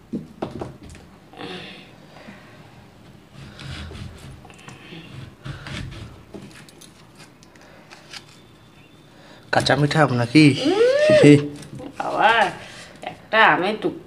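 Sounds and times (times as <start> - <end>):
knife scraping mango: 3.3 - 8.7.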